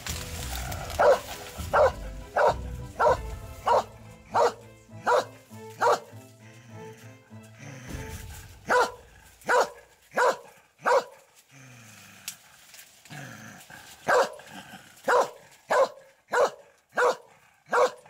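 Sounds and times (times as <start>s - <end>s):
dog barking: 1.0s - 6.1s, 8.7s - 11.3s, 14.0s - 14.4s, 15.0s - 18.0s.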